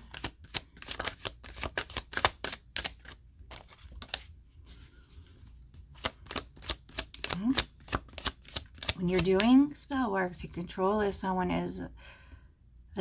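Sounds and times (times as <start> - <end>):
cards being shuffled: 0.0 - 9.7.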